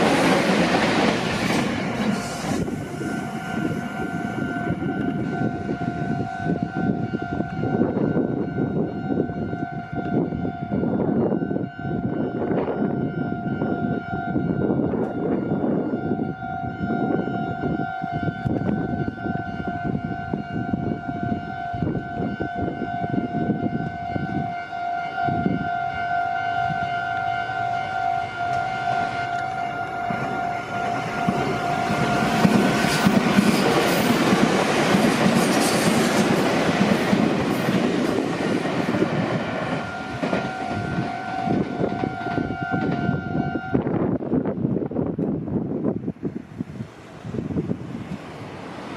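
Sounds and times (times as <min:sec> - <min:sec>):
train wheels on rails: 0:00.0 - 0:10.3, 0:27.5 - 0:48.9
level-crossing alarm ringing: 0:02.0 - 0:43.8.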